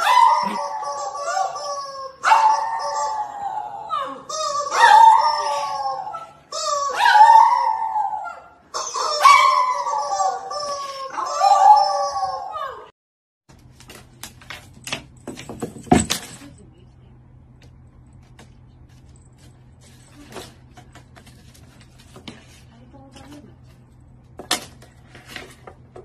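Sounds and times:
dog howling: 0:00.0 - 0:12.9.

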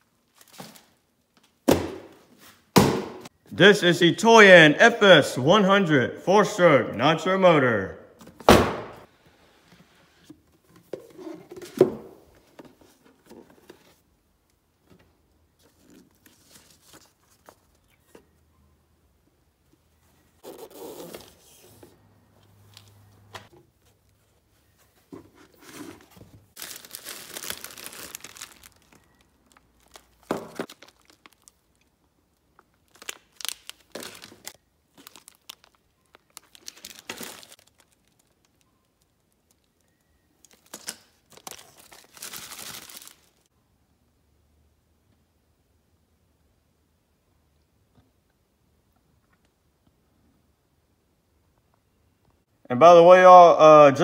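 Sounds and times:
plastic bags crinkling: 0:26.6 - 0:31.9, 0:32.6 - 0:39.8, 0:40.4 - 0:43.5.

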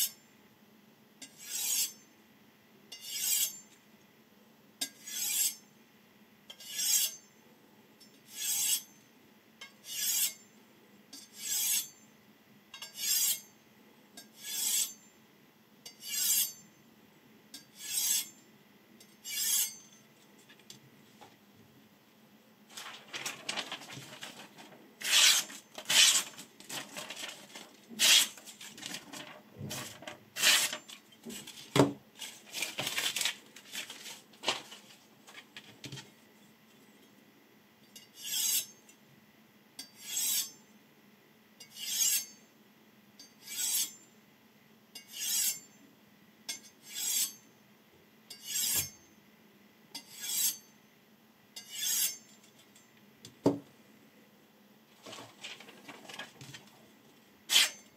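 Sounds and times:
knife stroked on honing rod: 0:01.2 - 0:02.0, 0:06.5 - 0:07.2, 0:08.3 - 0:08.8, 0:09.9 - 0:10.4, 0:11.4 - 0:11.9, 0:12.8 - 0:13.4, 0:14.4 - 0:15.0, 0:16.0 - 0:16.6, 0:17.6 - 0:18.3, 0:19.2 - 0:19.9, 0:25.0 - 0:26.3, 0:38.2 - 0:38.8, 0:40.0 - 0:40.5, 0:43.4 - 0:44.0, 0:46.8 - 0:47.4, 0:48.3 - 0:49.0, 0:50.0 - 0:50.7, 0:51.6 - 0:52.3, 0:57.5 - 0:57.8
scraping and rustling strokes: 0:22.7 - 0:36.3, 0:54.9 - 0:57.9.

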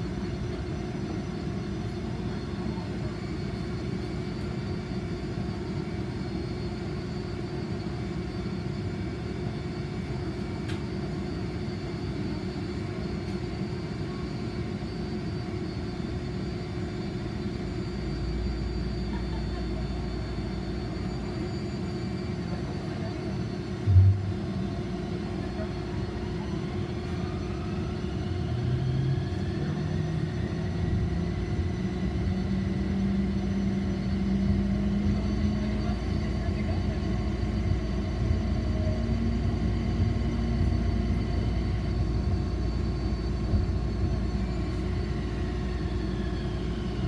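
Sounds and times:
steady hum: 0:23.7 - 0:25.7.

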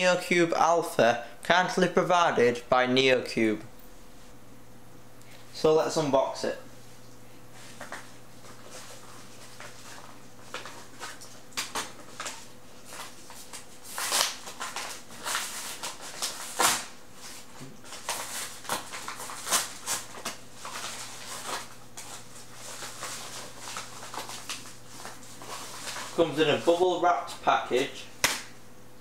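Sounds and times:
plastic envelope crinkling: 0:07.7 - 0:28.5.

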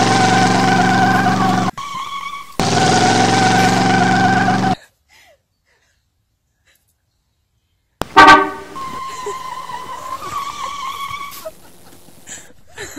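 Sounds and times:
car horn: 0:08.0 - 0:11.4.

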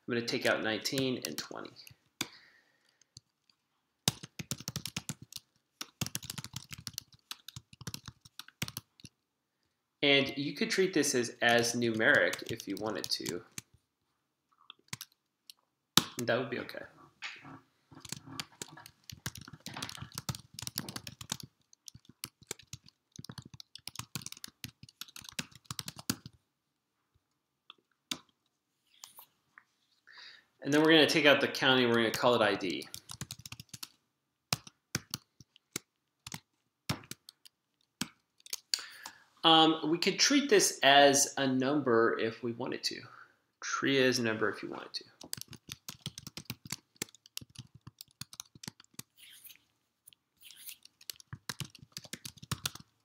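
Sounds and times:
computer keyboard typing: 0:03.0 - 0:09.2, 0:12.0 - 0:13.7, 0:14.7 - 0:15.2, 0:17.4 - 0:26.4, 0:32.8 - 0:38.8, 0:45.2 - 0:49.3, 0:50.4 - 0:53.0.

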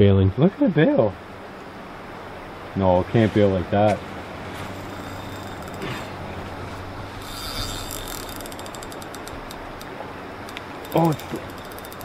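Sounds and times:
steady hiss: 0:02.8 - 0:12.0
fishing reel ratchet clicking: 0:04.8 - 0:05.8, 0:07.2 - 0:09.9, 0:10.5 - 0:12.0.

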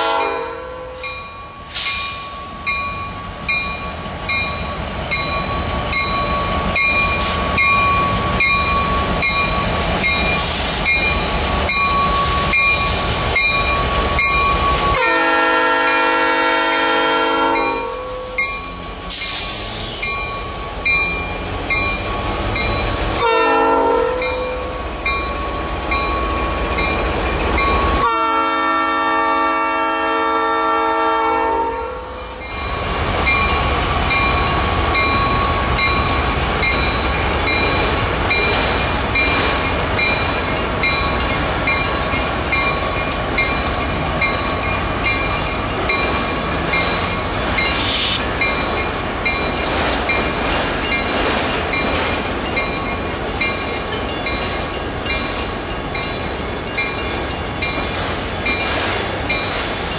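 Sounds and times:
locomotive horn blasts: 0:00.0 - 0:01.0, 0:15.0 - 0:18.2, 0:23.2 - 0:24.4, 0:28.0 - 0:32.4
train cars rumbling and clattering: 0:00.0 - 0:59.9.

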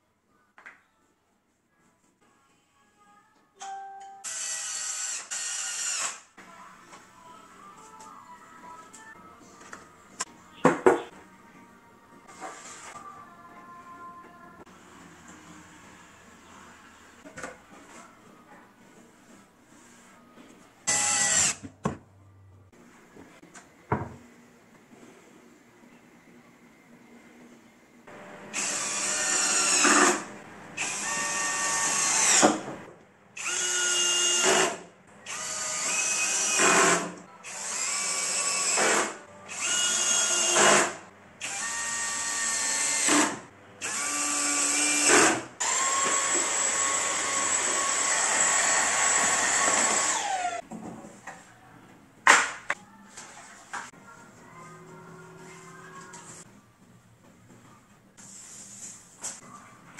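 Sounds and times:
cordless drill driving screws: 0:04.3 - 0:06.2, 0:20.9 - 0:21.6, 0:28.5 - 0:30.2, 0:30.8 - 0:32.5, 0:33.4 - 0:50.6.

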